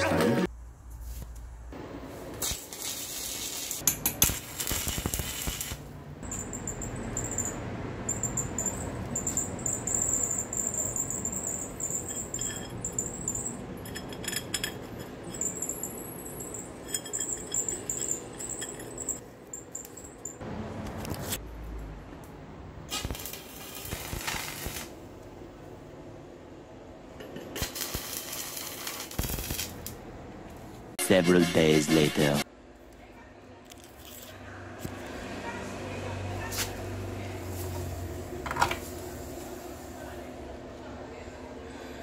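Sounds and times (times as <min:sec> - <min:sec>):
welding arc crackling and hissing: 0:02.3 - 0:05.9, 0:22.9 - 0:25.0, 0:27.5 - 0:30.0
steel parts clinking: 0:06.2 - 0:20.4.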